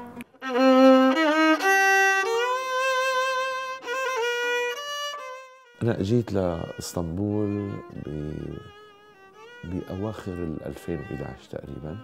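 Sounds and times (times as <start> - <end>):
bowed string melody: 0.0 - 12.0.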